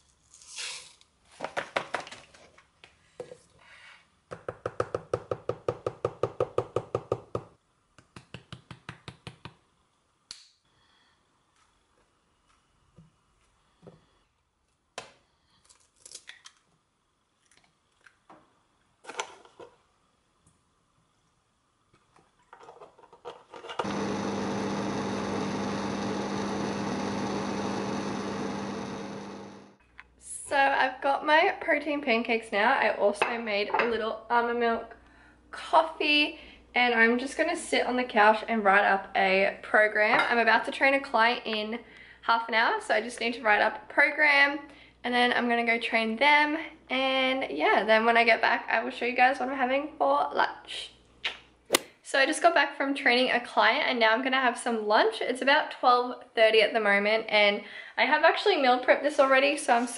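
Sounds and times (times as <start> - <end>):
banana peel ripping: 15.6 - 16.6, 51.7 - 51.9
blender motor running: 23.8 - 29.8.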